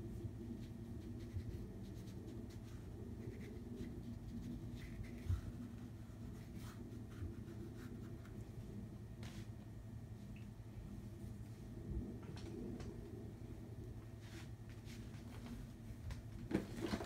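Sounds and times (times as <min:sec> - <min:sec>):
scratchy paintbrush strokes: 0:00.0 - 0:09.7
steady low hum: 0:00.0 - 0:17.0.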